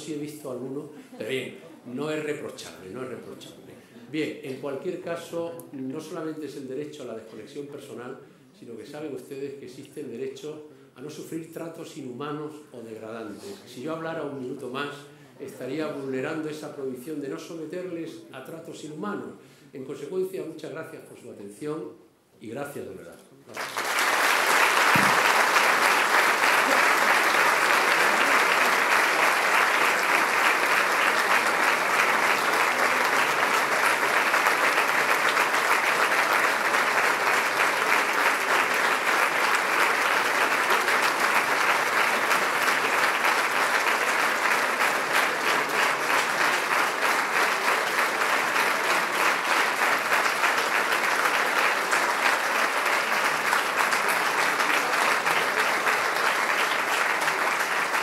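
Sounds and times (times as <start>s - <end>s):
audience applause: 23.5s - 58.0s.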